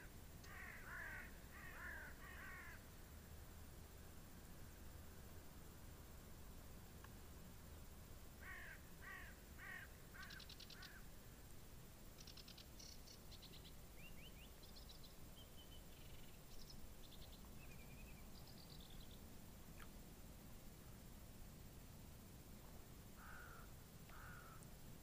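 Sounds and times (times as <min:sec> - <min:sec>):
repeated bird calls: 0:00.0 - 0:02.8, 0:08.4 - 0:11.1, 0:12.2 - 0:19.2
low outdoor background noise: 0:00.0 - 0:25.0
songbirds singing and trilling: 0:10.2 - 0:11.1, 0:12.2 - 0:19.9.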